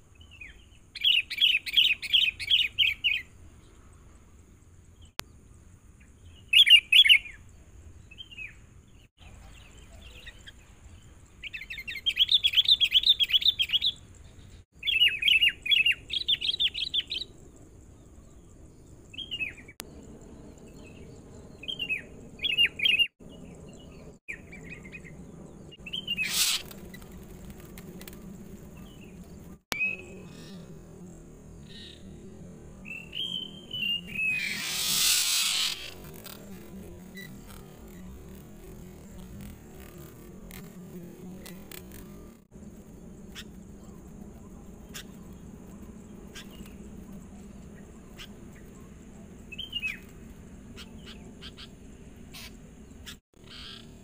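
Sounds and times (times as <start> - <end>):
short bird calls: 25.9 - 26.8, 33.2 - 36.0.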